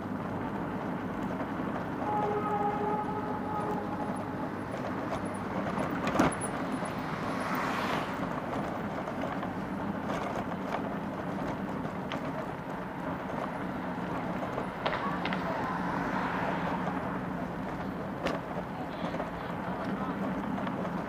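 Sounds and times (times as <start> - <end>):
road noise rumble: 0.0 - 21.0
vehicle passing close by: 2.0 - 9.4, 14.7 - 17.8.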